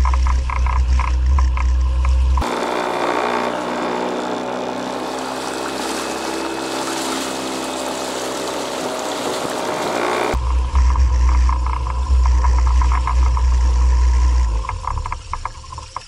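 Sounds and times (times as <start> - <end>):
water splashing along kayak hull: 4.4 - 10.4.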